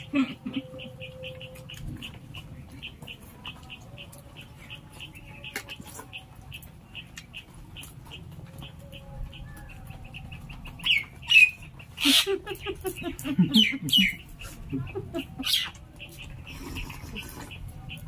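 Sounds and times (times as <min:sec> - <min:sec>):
people eating mouth sounds: 0:00.0 - 0:08.3, 0:12.8 - 0:18.0
small bird chirping: 0:00.5 - 0:12.2.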